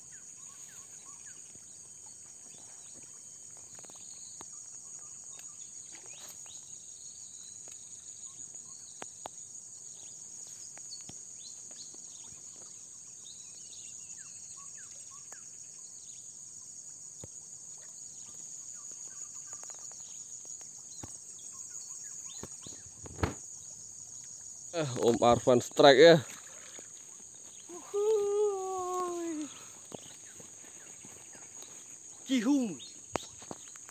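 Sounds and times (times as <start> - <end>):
insect chorus: 0.0 - 33.9
thump: 23.1 - 23.4.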